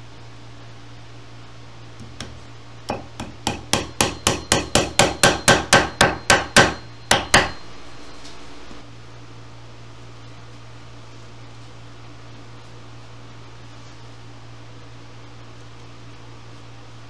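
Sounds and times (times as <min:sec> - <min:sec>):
small hammer tapping: 0:02.0 - 0:07.6.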